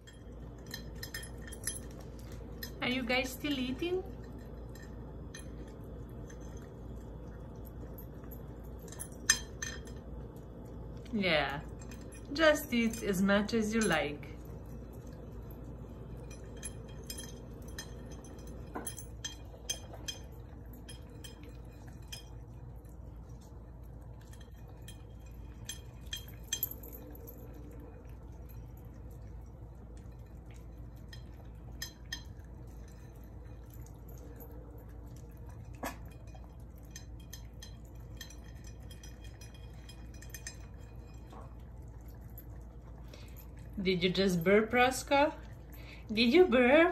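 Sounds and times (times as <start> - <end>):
clinks against bowl: 0.0 - 2.8, 7.6 - 10.1, 13.8 - 22.5, 30.0 - 34.5, 35.6 - 42.4
dogs eating wet mouth sounds: 0.0 - 46.9.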